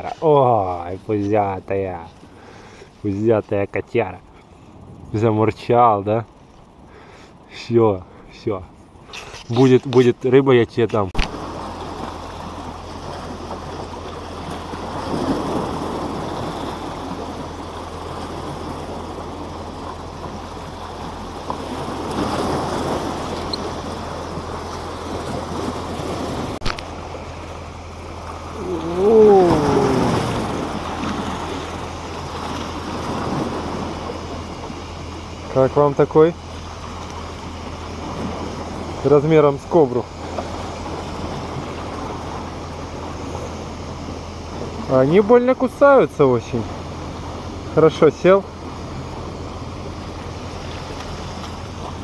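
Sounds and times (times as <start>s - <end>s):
waves splashing against rocks: 9.0s - 52.0s
wavering call: 28.4s - 30.8s
wind on microphone: 28.5s - 34.8s.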